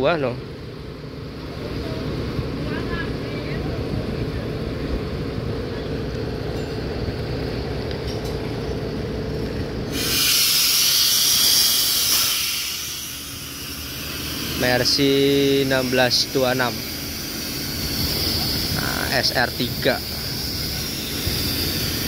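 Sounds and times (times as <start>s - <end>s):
bus engine idling: 0.0s - 22.0s
compressed air hiss: 9.9s - 22.0s.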